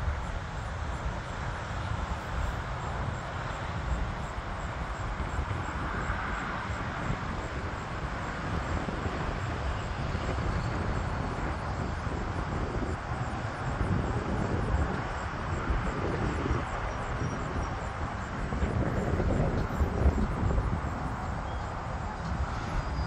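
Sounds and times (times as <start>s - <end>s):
jet airliner passing overhead: 0.0s - 23.0s.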